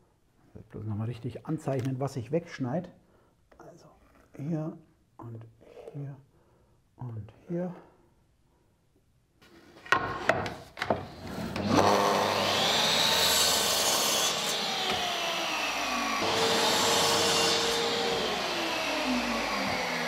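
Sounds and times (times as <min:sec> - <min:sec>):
miter saw cutting wood: 0:11.1 - 0:20.0.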